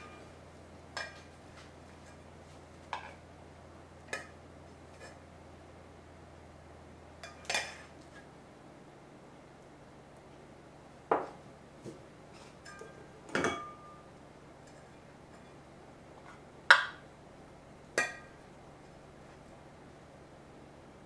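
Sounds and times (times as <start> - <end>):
metal bowls clinking on metal pot: 0.9 - 1.3, 7.2 - 7.9, 12.6 - 14.0, 18.0 - 18.4.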